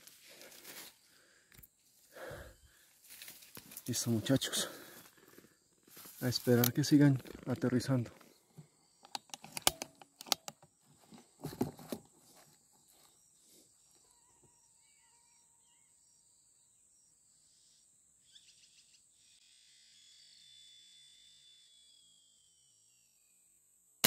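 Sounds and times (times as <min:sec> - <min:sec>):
faint bird chirps: 0:12.8 - 0:23.6.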